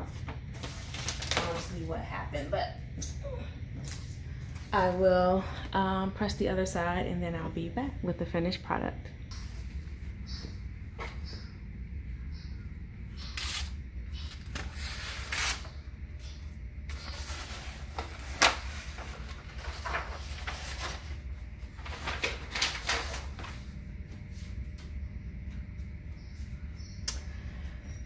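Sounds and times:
steady low hum: 0:00.0 - 0:28.0
paper rustling and crinkling: 0:00.1 - 0:01.8, 0:16.9 - 0:24.5.

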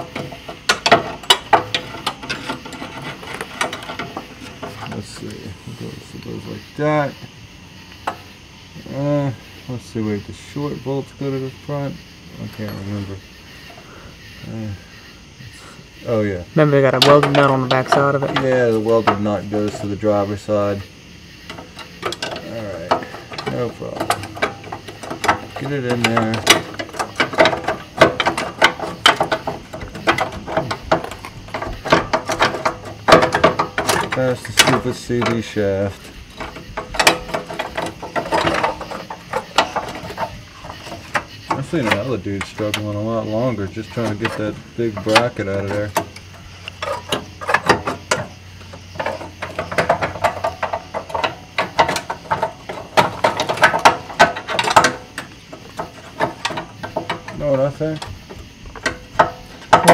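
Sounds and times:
metal clanks knocks and scrapes: 0:00.0 - 0:09.1, 0:09.9 - 0:14.6, 0:15.6 - 0:59.9
metal clicks and clinks: 0:21.5 - 0:59.9.

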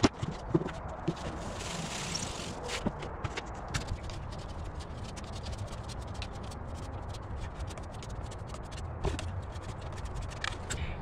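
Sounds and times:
hands scratching and clicking on box: 0:03.6 - 0:10.8.

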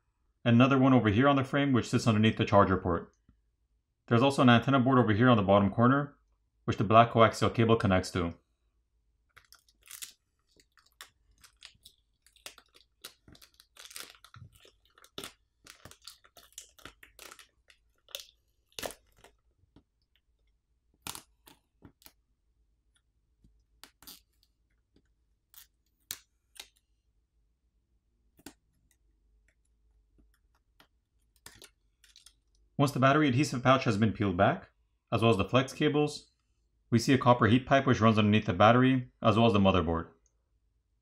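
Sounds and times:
adhesive and cables peeling: 0:09.3 - 0:20.2, 0:20.9 - 0:22.2, 0:23.7 - 0:26.8.

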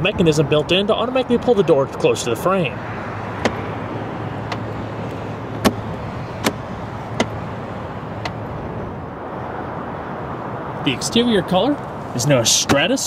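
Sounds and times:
car engine idling: 0:02.4 - 0:09.2
car door latch clicks: 0:03.4 - 0:03.6, 0:04.4 - 0:04.7, 0:05.5 - 0:07.4, 0:08.2 - 0:08.4.

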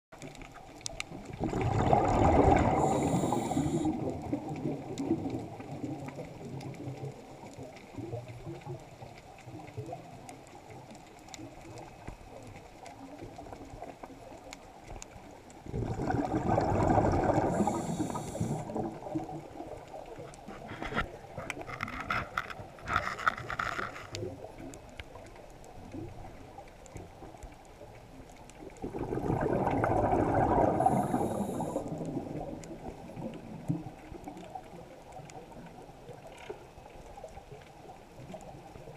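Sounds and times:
faint clicking: 0:00.2 - 0:01.4, 0:02.6 - 0:16.4, 0:17.0 - 0:28.9, 0:30.1 - 0:38.9
low underwater hiss: 0:00.2 - 0:38.9
exhaled breath bubbling underwater: 0:01.4 - 0:05.6, 0:15.6 - 0:19.2, 0:28.8 - 0:33.5.

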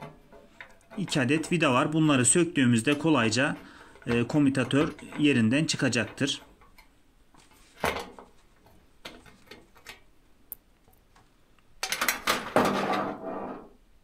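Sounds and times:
metal scraping and rattling: 0:00.0 - 0:06.8.

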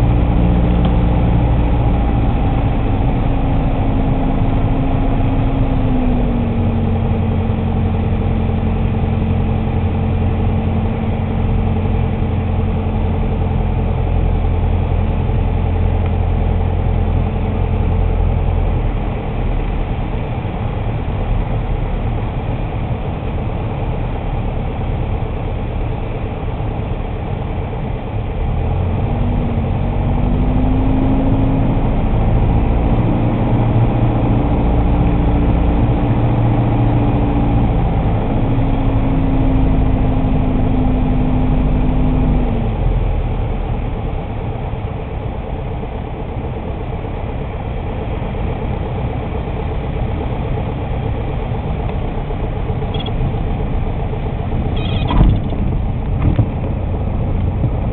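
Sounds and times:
aircraft engine and propeller droning: 0:00.0 - 0:57.9.

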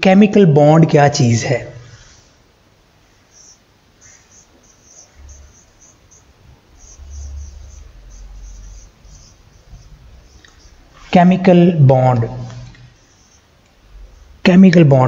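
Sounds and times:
marker squeaking on whiteboard: 0:03.2 - 0:11.5, 0:12.2 - 0:14.6.

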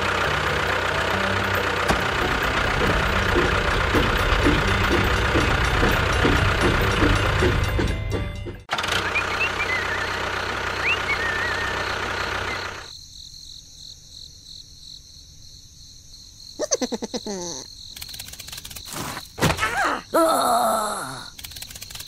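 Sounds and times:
squeaky cartoon voice sound: 0:16.6 - 0:17.6.

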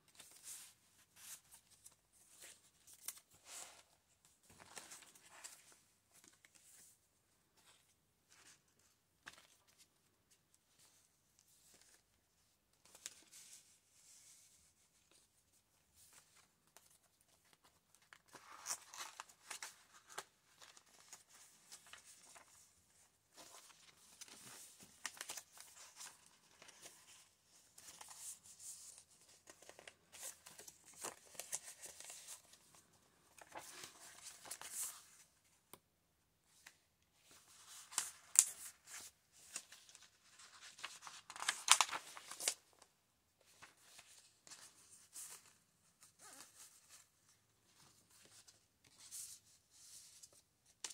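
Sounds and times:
paper pages rustling: 0:00.1 - 0:07.0, 0:16.0 - 0:35.3, 0:36.5 - 0:50.9.

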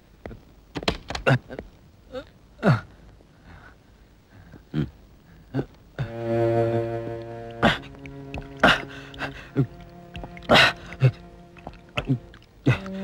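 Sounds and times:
sustained music chord: 0:06.0 - 0:13.0.

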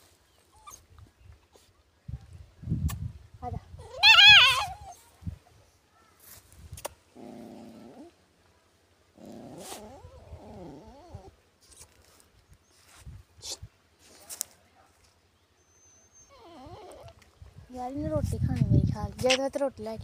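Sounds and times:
puppy whimpering: 0:03.8 - 0:05.0, 0:16.1 - 0:17.2.

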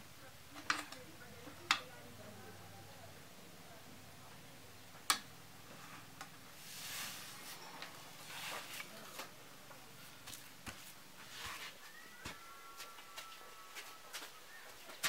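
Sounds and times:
soft rustling: 0:05.6 - 0:15.0
footsteps on bamboo floor: 0:10.1 - 0:15.0.

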